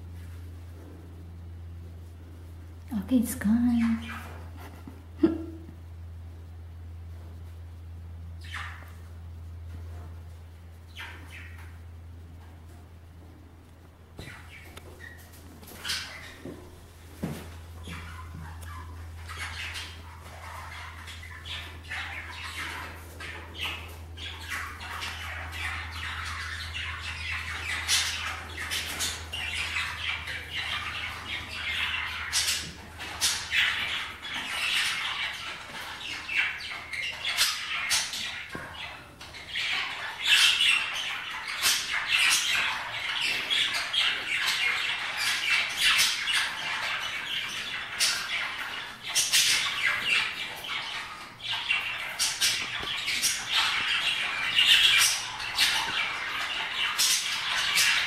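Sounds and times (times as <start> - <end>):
low steady hum: 0.0 - 58.0
budgerigars chattering: 3.4 - 4.6, 8.4 - 9.2, 10.8 - 11.9, 14.2 - 58.0
bird squawks: 8.4 - 9.1, 17.7 - 58.0.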